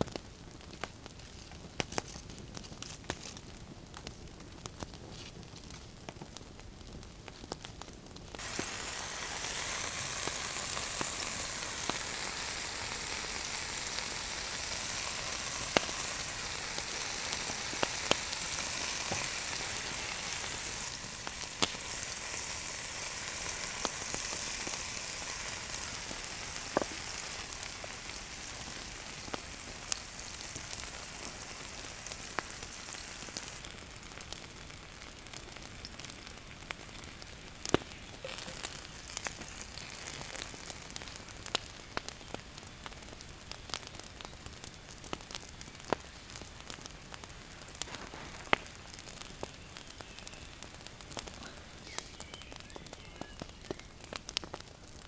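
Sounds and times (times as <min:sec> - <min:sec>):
meat sizzling in frying pan: 0:08.4 - 0:44.3.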